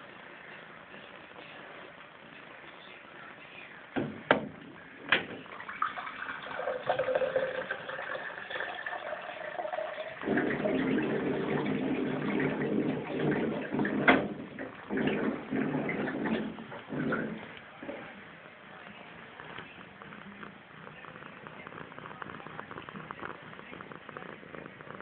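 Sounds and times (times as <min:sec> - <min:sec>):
water running: 0:05.1 - 0:22.9.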